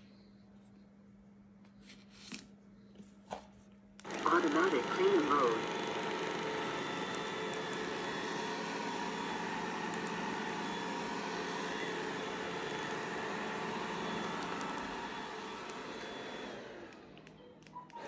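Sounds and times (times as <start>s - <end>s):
faint motor whine: 0.0s - 18.0s
robot vacuum cleaner humming: 4.0s - 18.0s.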